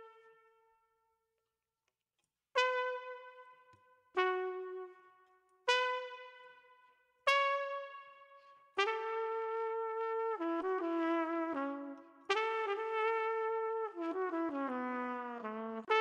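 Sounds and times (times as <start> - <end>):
single trumpet notes: 2.6 - 6.7.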